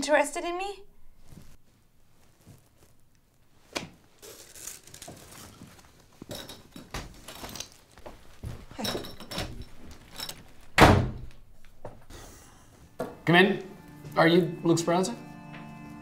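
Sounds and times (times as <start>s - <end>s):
rustling: 0.9s - 12.0s
small metallic jingles: 6.2s - 10.7s
door shut hard: 10.8s - 11.3s.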